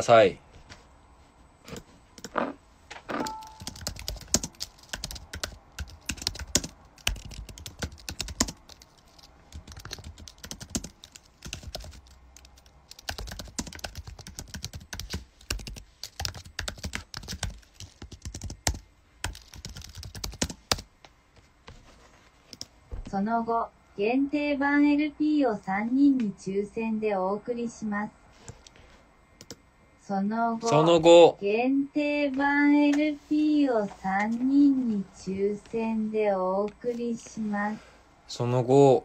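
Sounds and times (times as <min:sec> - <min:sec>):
typing on a keyboard: 0:03.2 - 0:20.9, 0:29.4 - 0:29.6.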